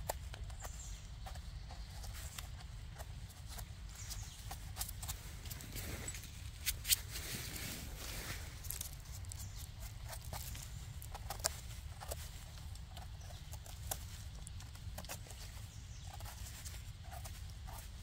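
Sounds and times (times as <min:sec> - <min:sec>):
footsteps crunching through leaves: 0:05.2 - 0:12.5.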